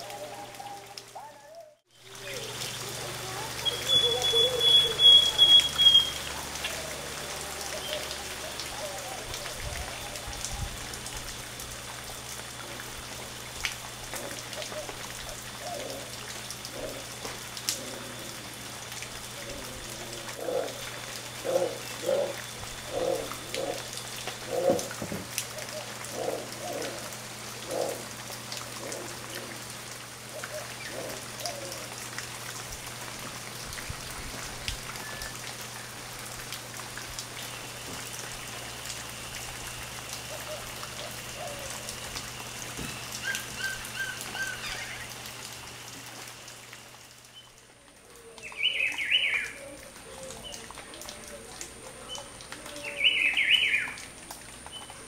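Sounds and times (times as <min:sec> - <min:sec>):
howler monkeys grunting: 0:14.1 - 0:18.7, 0:19.3 - 0:25.0, 0:25.6 - 0:29.7, 0:30.3 - 0:32.0.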